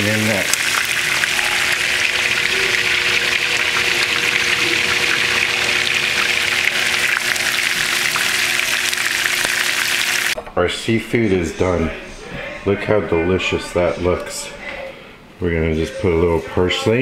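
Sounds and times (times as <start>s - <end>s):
shrimp sizzling in hot oil: 0.0s - 10.4s.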